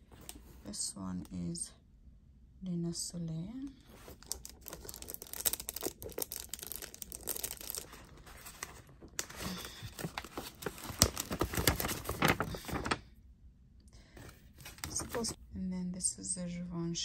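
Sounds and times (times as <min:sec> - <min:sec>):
paper bag rustling: 0:03.9 - 0:13.0, 0:14.2 - 0:15.4.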